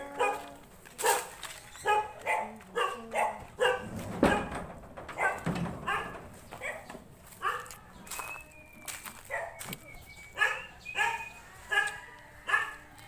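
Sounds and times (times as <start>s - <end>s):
dog barking: 0.0s - 7.9s, 9.3s - 9.6s, 10.4s - 12.9s
loud knock: 3.8s - 7.0s.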